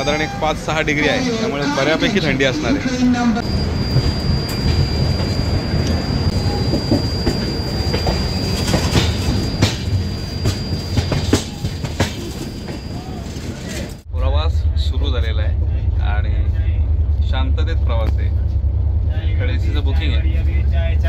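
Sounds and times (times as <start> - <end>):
high-pitched whine: 0.0 - 21.0
train rumbling on rails: 0.0 - 21.0
rail clicks: 3.0 - 14.1.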